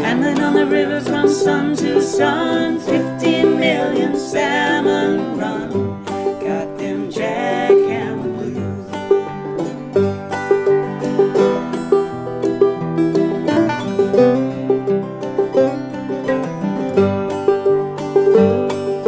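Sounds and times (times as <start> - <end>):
woman and man singing: 0.0 - 9.1
acoustic guitars and banjo: 0.0 - 19.0.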